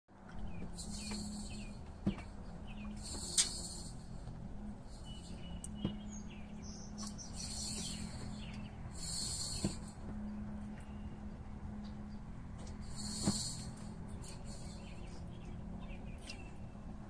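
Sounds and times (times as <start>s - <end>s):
steady low hum: 0.1s - 17.0s
small birds chirping: 0.2s - 17.0s
insects buzzing: 0.5s - 10.6s, 12.7s - 15.2s.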